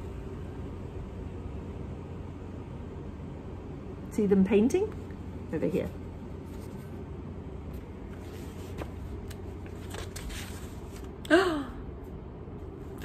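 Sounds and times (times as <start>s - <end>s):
steady low hum: 0.0s - 13.0s
paperback book rustling: 7.7s - 11.2s
soft clicks of book handling: 7.7s - 11.2s.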